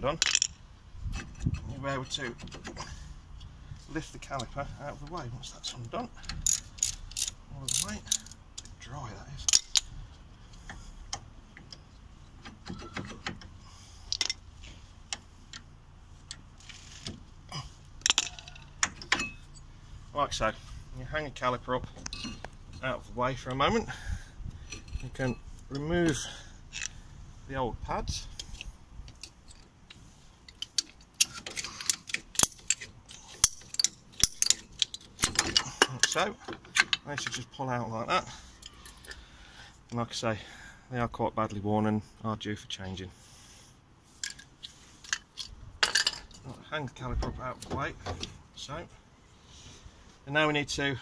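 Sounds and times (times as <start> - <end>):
metallic clicks and knocks: 0.1 - 3.5, 4.2 - 8.8, 9.4 - 17.2, 18.0 - 19.7, 21.8 - 22.9, 24.6 - 27.0, 28.3 - 37.6, 44.2 - 48.4
allen key clicking in bolt: 30.5 - 37.4.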